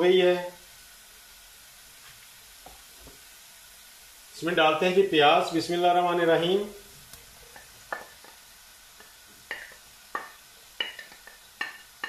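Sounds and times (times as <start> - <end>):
faint sizzle: 0.0 - 12.0
wooden spatula knocking on pot: 7.5 - 8.4, 9.5 - 11.8.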